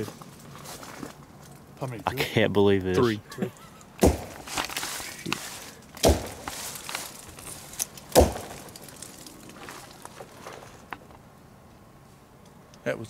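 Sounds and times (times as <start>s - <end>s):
rock knocking on tree trunk: 4.0s - 4.8s, 6.0s - 7.0s, 8.0s - 9.3s.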